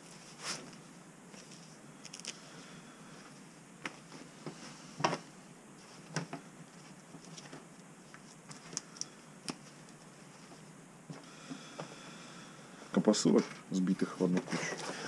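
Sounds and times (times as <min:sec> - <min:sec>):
glove rustles: 0:00.0 - 0:02.4.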